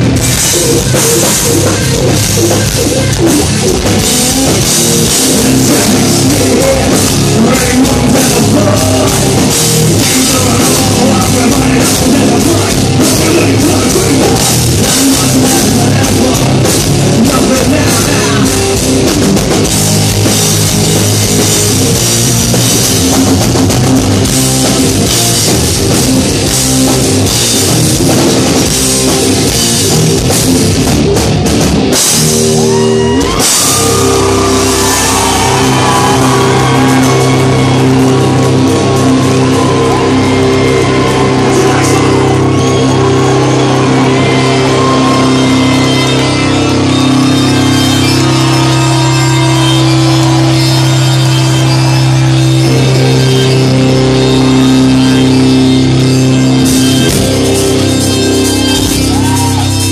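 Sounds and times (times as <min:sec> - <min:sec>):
bass guitar: 0:00.0 - 0:59.9
distorted electric guitars: 0:00.0 - 0:59.9
drum kit with heavy cymbals: 0:00.0 - 0:59.9.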